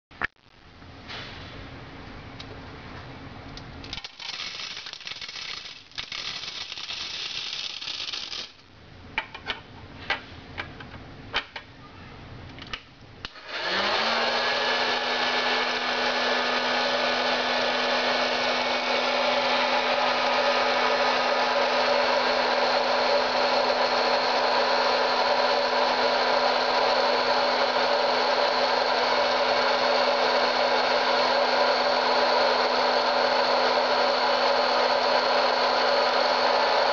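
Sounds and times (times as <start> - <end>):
popcorn maker blower rushing air: 3.9 - 8.6, 13.3 - 36.9.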